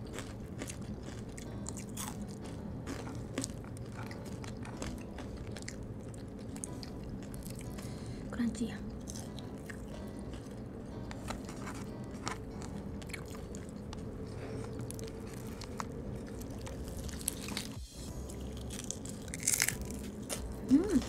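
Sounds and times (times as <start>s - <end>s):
chewing crispy fried chicken: 0.0s - 8.1s, 8.9s - 21.0s.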